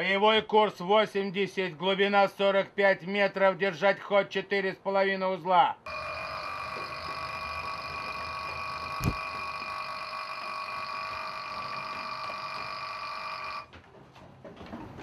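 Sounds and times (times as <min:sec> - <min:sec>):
steady high-pitched whine: 0:05.9 - 0:13.7.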